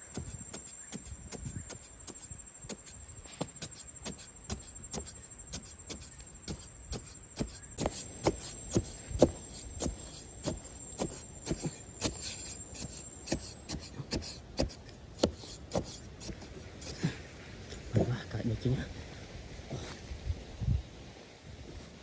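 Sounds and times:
machete chopping into sandy soil: 0.1s - 17.2s.

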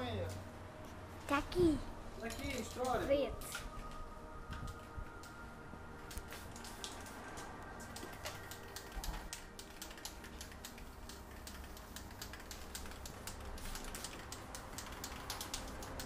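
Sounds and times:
spray can shaken with rattling ball: 9.0s - 16.0s.

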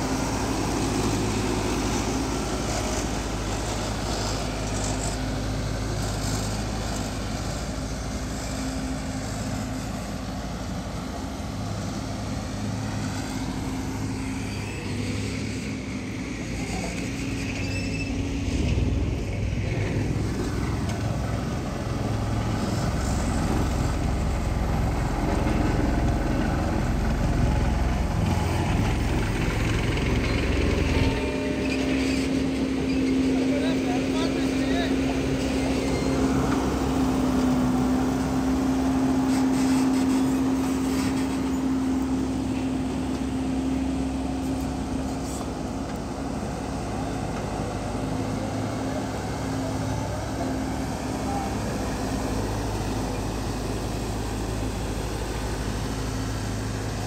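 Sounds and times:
diesel machinery engine running: 0.0s - 57.0s.

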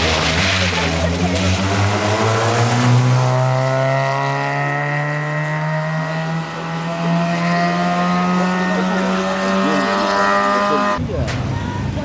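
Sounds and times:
rally car engine revving: 0.0s - 11.4s.

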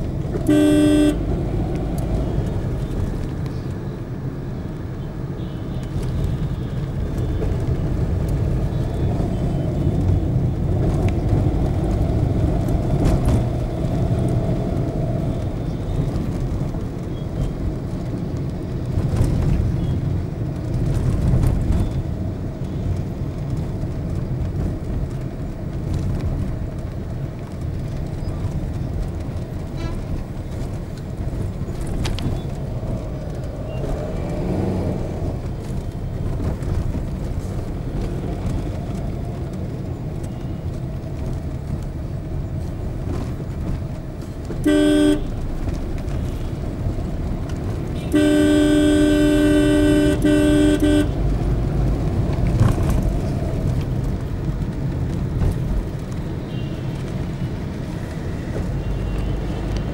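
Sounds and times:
car engine and road rumble: 0.0s - 59.9s
car horn honk: 0.4s - 1.3s, 44.6s - 45.4s, 48.0s - 51.3s.

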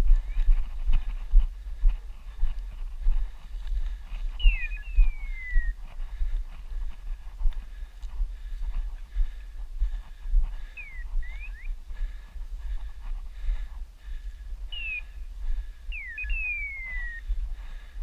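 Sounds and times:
low wind rumble: 0.0s - 18.0s
rustle of walking through scrub: 0.0s - 18.0s
sliding whistled calls: 4.4s - 5.8s, 10.8s - 11.8s, 14.7s - 15.1s, 15.9s - 17.3s.

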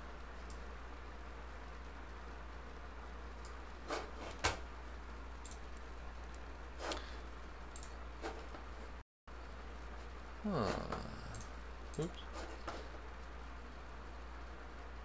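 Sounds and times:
steady low hum: 0.0s - 15.0s
computer mouse clicking: 7.7s - 8.0s.

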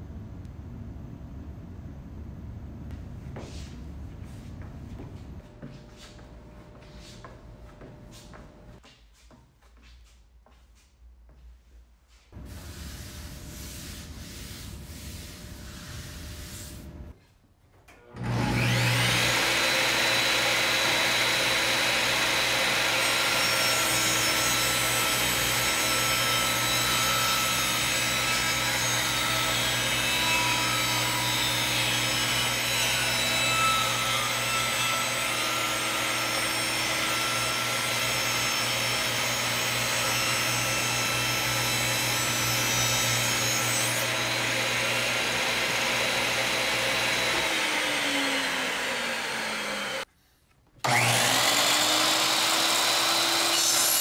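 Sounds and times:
table saw running: 18.1s - 50.1s, 50.8s - 54.0s
saw ripping wooden board: 50.8s - 54.0s.

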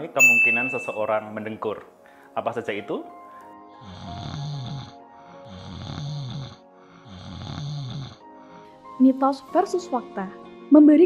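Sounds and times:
background music: 0.0s - 11.0s
person snoring: 3.8s - 8.8s.

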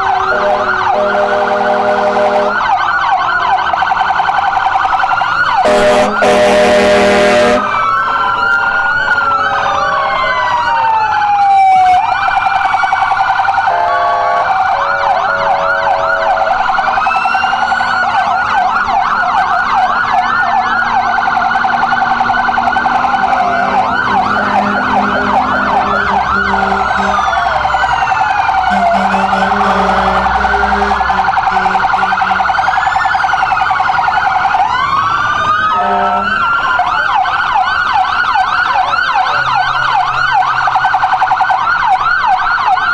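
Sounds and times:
emergency vehicle sirens wailing: 0.0s - 42.9s
horn blasts: 0.2s - 2.6s, 5.6s - 7.8s, 13.7s - 14.6s, 23.4s - 27.8s, 28.6s - 32.7s, 35.7s - 36.4s.

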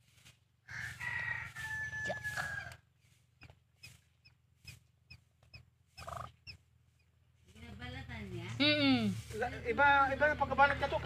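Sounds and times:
ducklings peeping: 3.4s - 6.6s.

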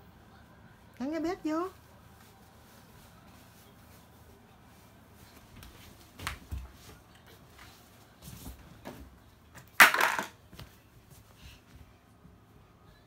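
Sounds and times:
plastic toy pieces knocking: 9.8s - 10.4s.

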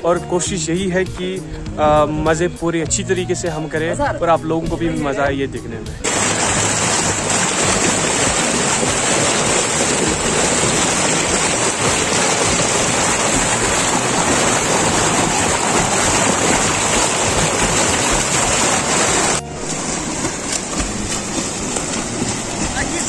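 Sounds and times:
stream water rushing: 6.0s - 23.0s.

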